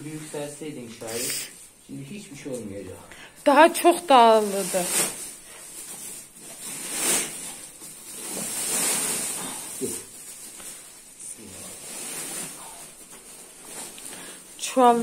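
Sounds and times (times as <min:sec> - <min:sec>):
cloth and sack rustling: 0:03.7 - 0:15.0.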